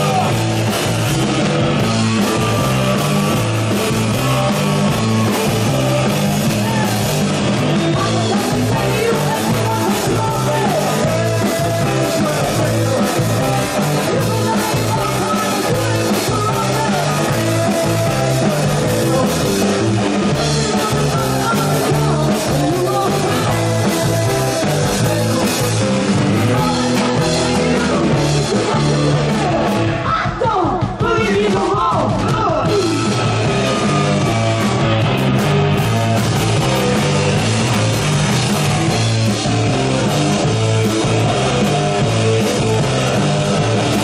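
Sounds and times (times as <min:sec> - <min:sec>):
person singing: 0:00.0 - 0:00.9, 0:01.8 - 0:35.0
bass guitar: 0:00.0 - 0:44.0
distorted electric guitar: 0:00.0 - 0:44.0
drums: 0:00.0 - 0:44.0.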